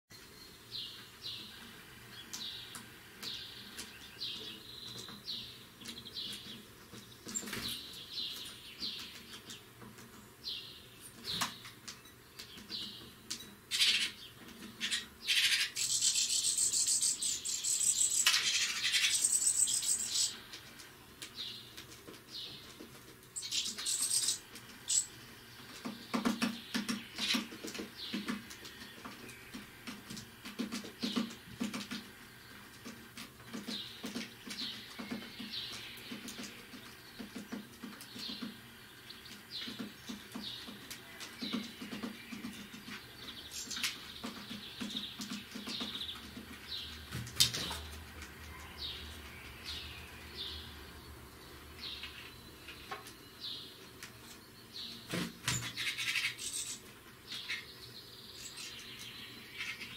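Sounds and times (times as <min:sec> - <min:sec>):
bird chirping calls: 0:10.4 - 0:20.6, 0:21.3 - 0:50.9, 0:51.8 - 0:59.9.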